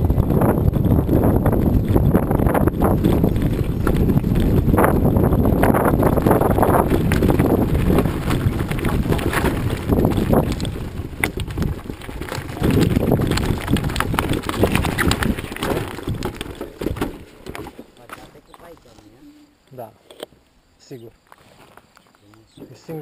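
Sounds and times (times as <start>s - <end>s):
bike rattling over stones: 0.0s - 19.2s
wind rumbling on microphone: 0.0s - 19.6s
tyres crunching on gravel: 0.3s - 19.2s.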